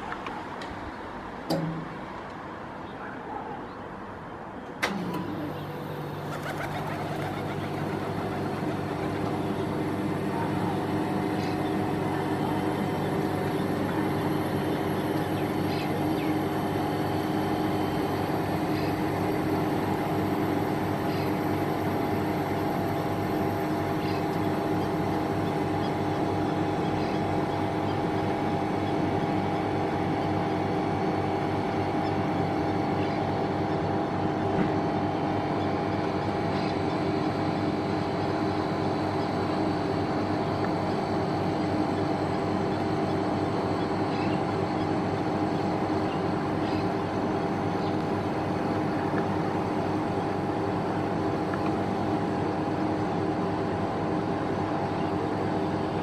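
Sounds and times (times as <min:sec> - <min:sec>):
motor humming: 0:04.8 - 0:27.8.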